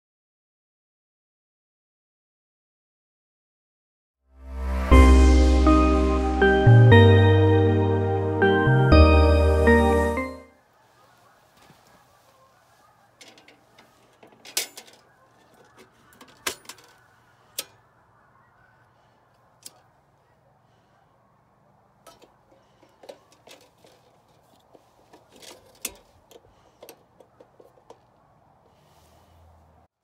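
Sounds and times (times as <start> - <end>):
metal lantern clanking: 13.2 - 17.8, 22.0 - 28.0.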